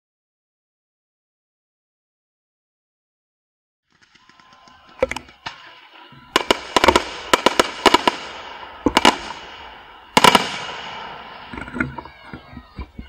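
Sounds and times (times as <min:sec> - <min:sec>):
fireworks bursting: 0:03.9 - 0:13.0.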